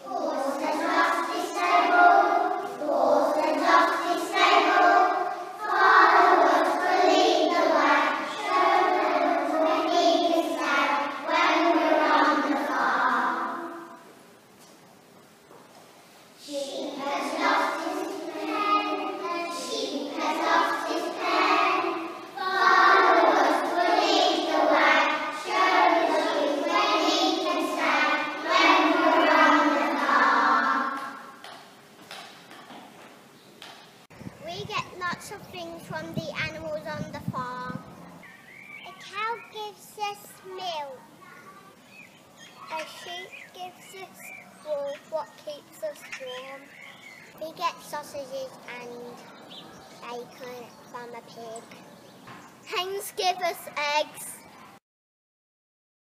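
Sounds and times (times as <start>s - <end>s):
children singing in unison: 0.0s - 14.0s, 16.4s - 31.4s.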